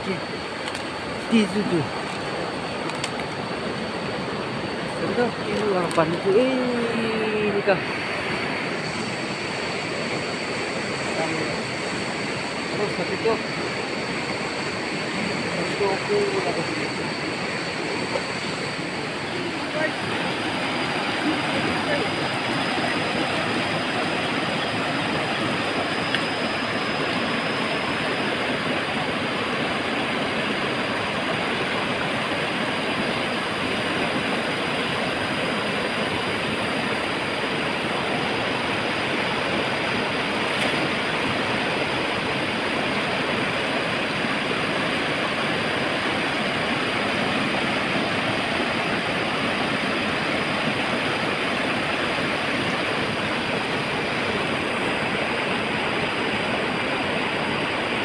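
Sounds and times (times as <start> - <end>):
river rushing over rocks: 11.8 - 58.0.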